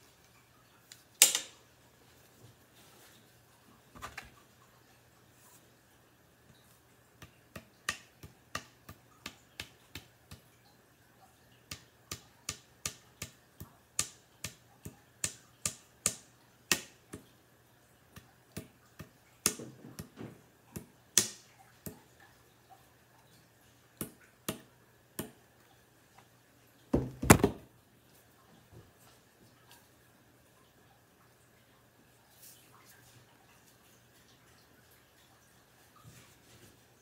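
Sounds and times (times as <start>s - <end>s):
wooden parts knocking together: 27.0s - 27.7s.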